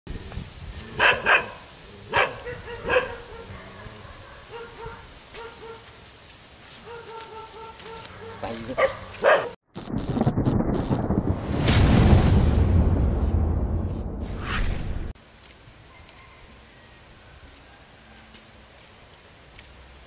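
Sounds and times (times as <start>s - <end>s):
dog barking: 1.0s - 5.9s, 6.8s - 9.6s.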